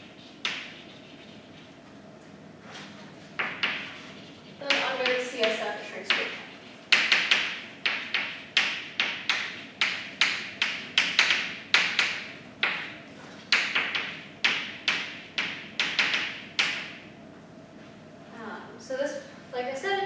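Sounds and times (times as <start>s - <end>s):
chalk tapping on blackboard: 0.4s - 1.4s, 3.4s - 4.0s, 4.7s - 12.9s, 13.5s - 16.9s.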